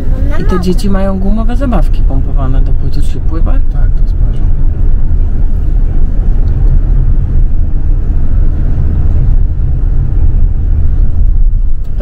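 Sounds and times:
car cabin road rumble: 0.0s - 12.0s.

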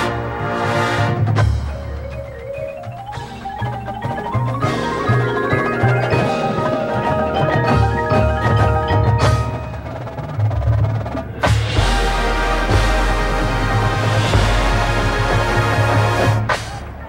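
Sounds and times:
mallet percussion ensemble playing: 1.4s - 11.1s.

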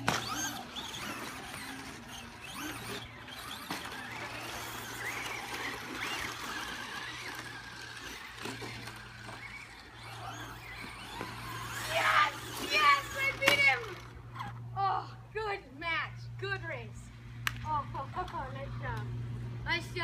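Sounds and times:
radio-controlled car motors whining: 0.0s - 14.7s.

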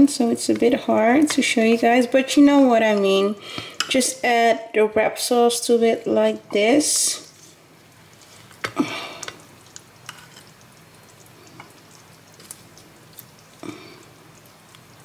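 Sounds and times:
faint wet squishing: 7.3s - 15.0s
spoon scraping: 9.3s - 13.6s.

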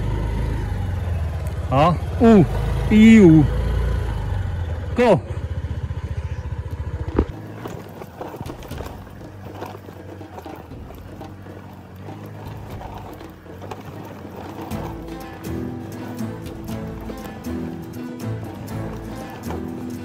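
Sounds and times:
motorcycle engine running: 0.0s - 20.0s
clicking and rattling: 6.6s - 20.0s.

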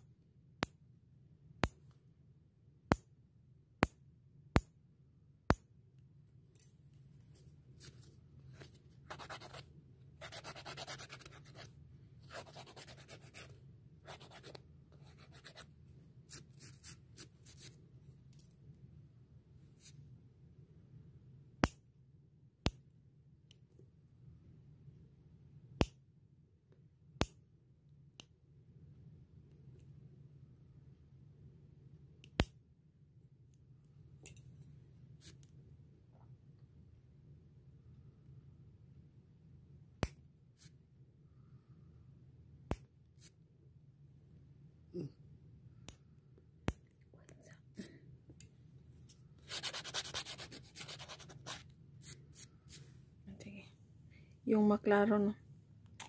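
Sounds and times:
nail file rasping: 10.2s - 11.7s, 49.4s - 52.8s.

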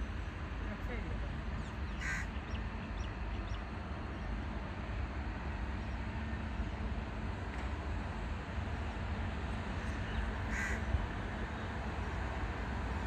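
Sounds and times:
crow cawing: 2.0s - 2.3s, 10.5s - 10.9s.

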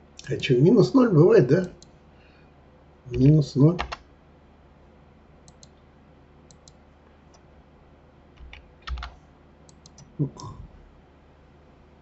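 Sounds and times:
mouse and keyboard clicks: 5.5s - 5.8s, 6.5s - 7.4s, 8.4s - 10.1s.

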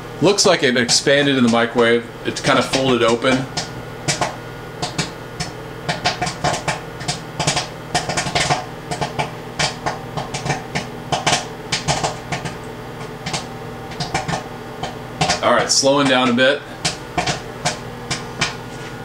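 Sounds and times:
microwave humming: 0.0s - 19.0s
popcorn popping: 0.1s - 19.0s.

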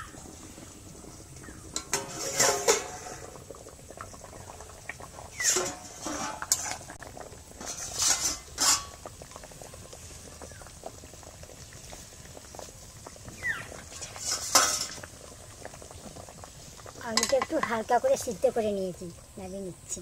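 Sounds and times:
water bubbling in wok: 0.0s - 20.0s
metal clanks and scrapes: 1.7s - 3.4s, 5.4s - 7.0s, 7.6s - 9.0s, 13.9s - 15.1s.

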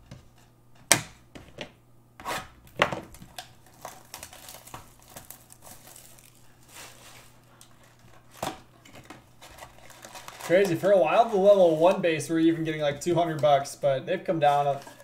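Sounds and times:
wrapping torn and crumpled: 3.1s - 12.0s.

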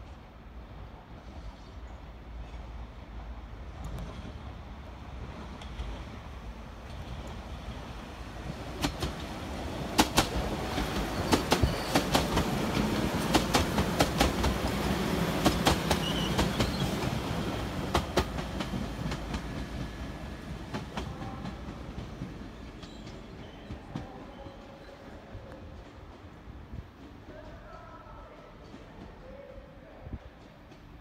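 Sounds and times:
train running hum: 0.0s - 31.0s
train wheels clicking over rail joints: 8.4s - 17.2s.

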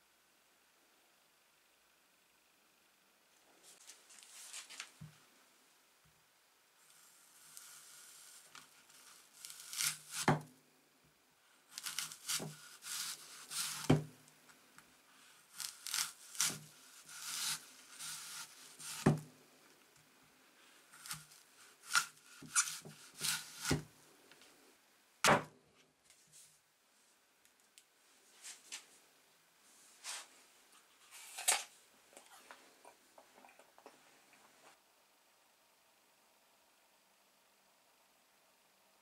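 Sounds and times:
blade slicing crisp apple: 7.4s - 10.5s, 11.7s - 14.2s, 15.5s - 19.3s, 20.9s - 23.9s.

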